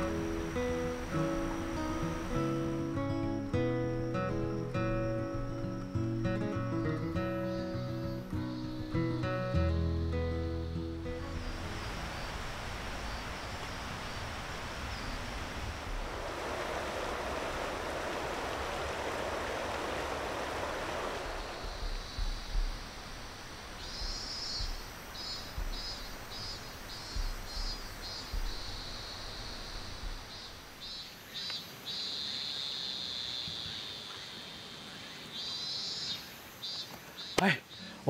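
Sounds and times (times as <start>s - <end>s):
high-pitched insects calling: 0.0s - 15.4s, 20.4s - 38.0s
stream water rushing: 0.0s - 31.8s
wind thumps on microphone: 12.0s - 31.0s.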